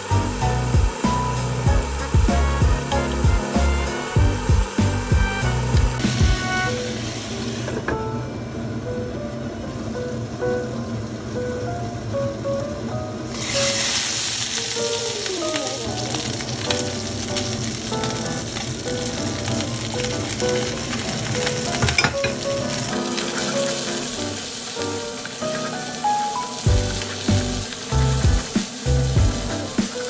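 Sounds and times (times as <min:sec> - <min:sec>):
chicken sizzling in oil: 0:00.0 - 0:07.7, 0:13.3 - 0:30.0
light background music: 0:00.0 - 0:30.0
spatula scraping pan: 0:23.1 - 0:24.1.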